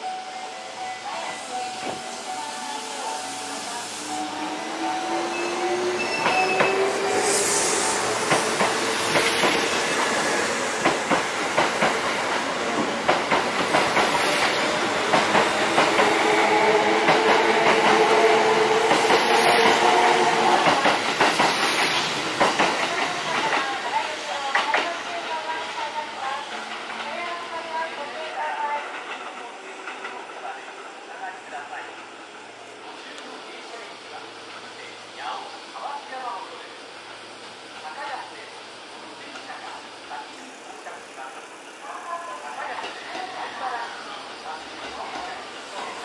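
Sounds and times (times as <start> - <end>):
train wheels clicking over rail joints: 20.6 - 23.7.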